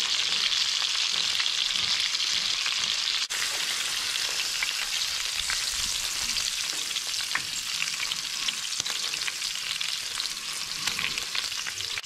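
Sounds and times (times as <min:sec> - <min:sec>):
hot oil sizzling in a frying pan: 0:00.0 - 0:12.0.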